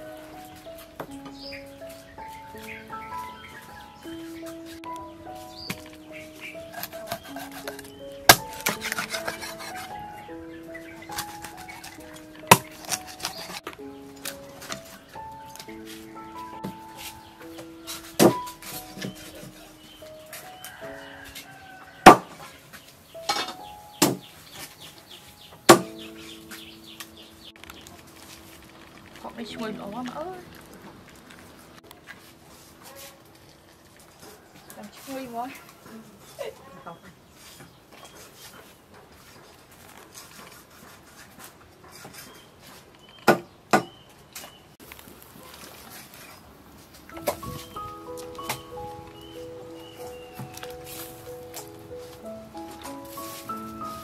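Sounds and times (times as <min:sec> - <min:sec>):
low steady background noise: 0:13.6 - 0:52.8.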